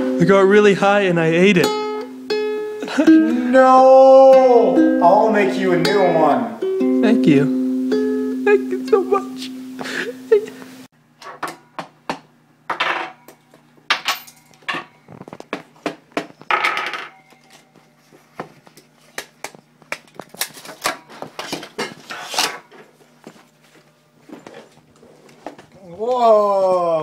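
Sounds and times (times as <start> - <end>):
small objects clattering on desk: 16.2 - 17.6.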